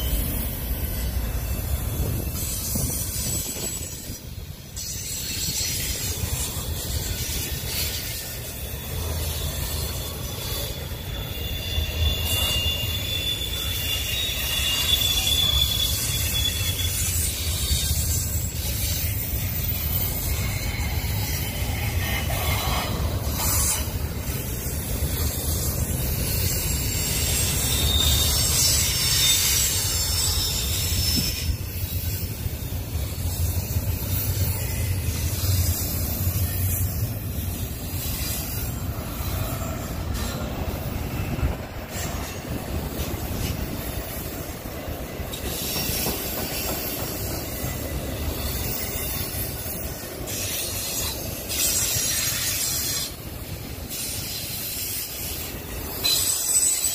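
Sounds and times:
freight train wheels rumbling: 0:00.0 - 0:56.9
high wheel squeal: 0:00.0 - 0:56.9.

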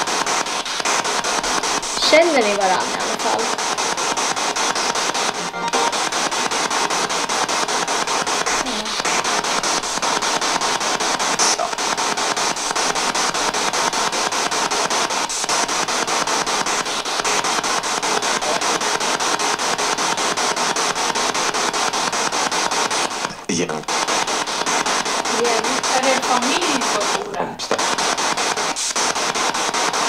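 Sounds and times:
pulsing radio static: 0:00.0 - 0:30.0
voice fragment: 0:08.5 - 0:09.2, 0:23.3 - 0:23.8.

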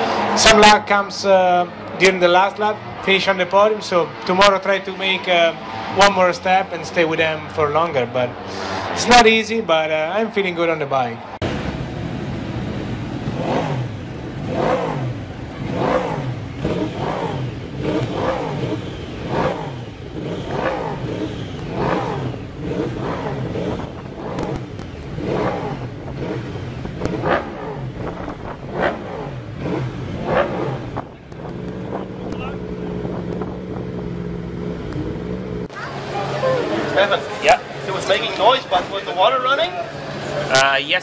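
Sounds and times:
motorcycle engines revving: 0:00.0 - 0:41.0.

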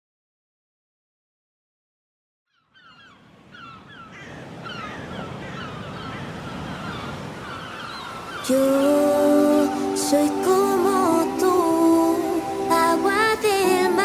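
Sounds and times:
gulls calling: 0:02.5 - 0:14.0
ocean surf: 0:03.1 - 0:14.0
music with sustained notes: 0:08.4 - 0:14.0.

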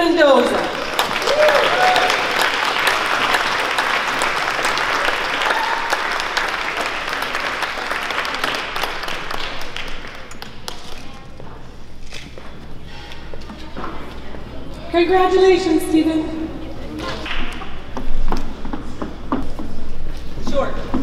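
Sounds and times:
audience applauding: 0:00.4 - 0:10.8.

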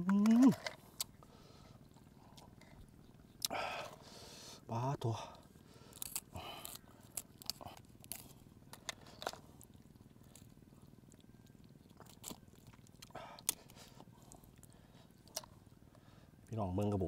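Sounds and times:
shell cracking and snapping: 0:00.0 - 0:01.1, 0:05.9 - 0:10.6, 0:11.9 - 0:13.8
scissors snipping lobster shell: 0:05.9 - 0:09.4.

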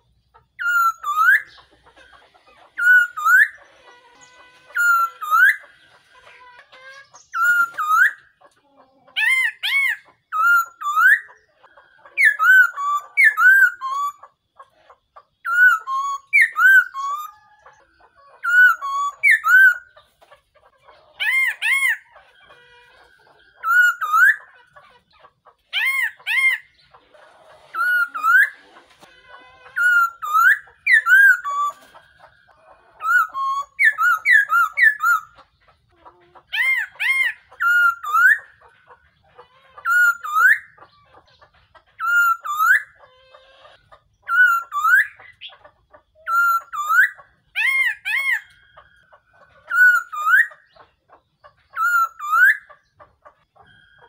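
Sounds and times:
laughingthrush singing: 0:23.2 - 0:32.0.

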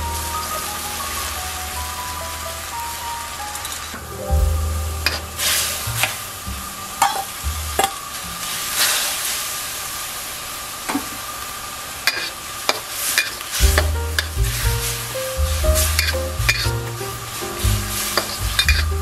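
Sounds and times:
background music: 0:00.0 - 0:06.9, 0:13.6 - 0:19.0
sizzling and bubbling in a wok: 0:00.0 - 0:19.0.

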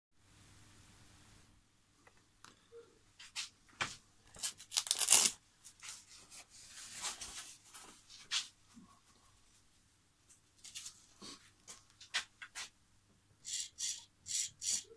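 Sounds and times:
rustling and scraping handling noises: 0:03.2 - 0:12.8.

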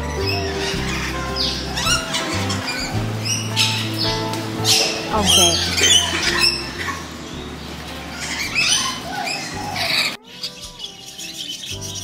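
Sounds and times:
macaws squawking: 0:04.7 - 0:11.9.

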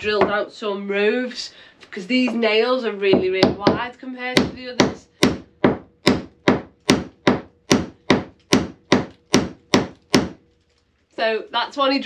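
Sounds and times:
hammering on timber: 0:03.1 - 0:10.4.

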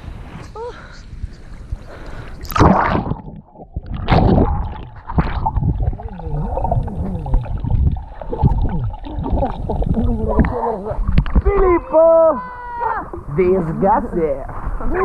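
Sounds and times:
gurgling underwater bubbles: 0:02.1 - 0:11.7
camera splashing into water: 0:02.4 - 0:05.7.

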